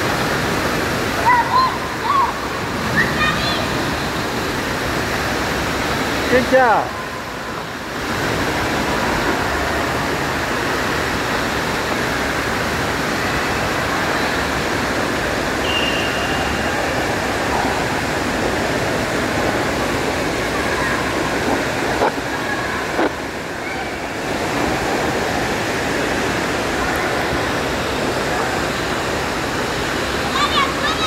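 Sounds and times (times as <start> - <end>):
water pouring from fountains: 0.0 - 31.0
swimmers splashing: 13.3 - 31.0.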